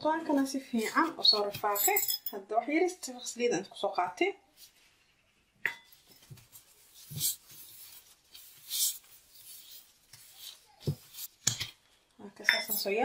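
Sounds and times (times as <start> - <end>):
gloved hand rubbing dough: 6.0 - 11.5.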